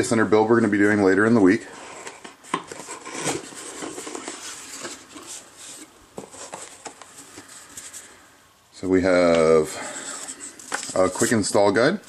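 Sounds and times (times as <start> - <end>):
cardboard box being opened: 1.9 - 7.4.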